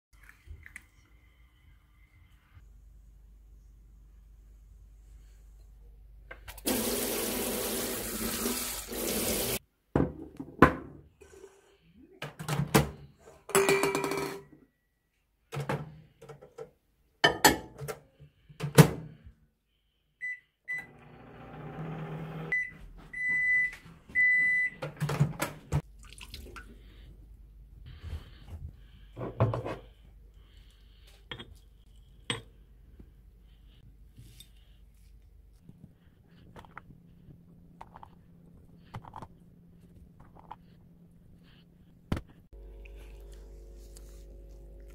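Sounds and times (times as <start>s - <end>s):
cups and dishes clinking: 17.2s - 17.8s, 31.3s - 31.6s, 32.2s - 32.5s
microwave keypad beeps: 22.5s - 24.8s.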